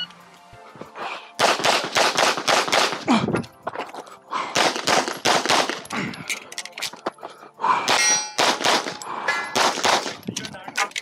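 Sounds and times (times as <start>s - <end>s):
pistol shots: 1.4s - 3.1s, 4.5s - 5.9s, 7.9s - 10.2s.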